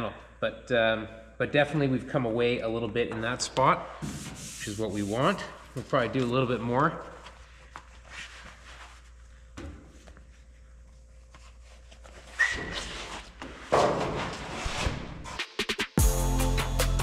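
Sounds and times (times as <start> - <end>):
brief squeak: 12.4 - 12.9.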